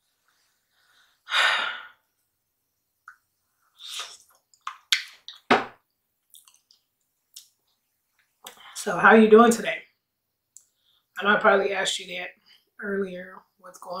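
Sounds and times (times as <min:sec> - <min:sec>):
breathy exhale: 0:00.7 - 0:02.0
mouth clicks and smacks: 0:03.0 - 0:05.6, 0:06.2 - 0:08.7, 0:10.5 - 0:10.8.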